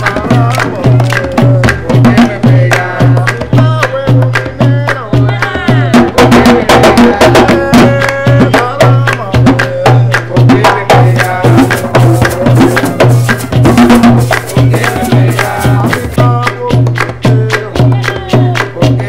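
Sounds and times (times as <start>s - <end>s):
hand drums thumping: 0.0s - 18.9s
shaker rattling: 11.0s - 16.2s.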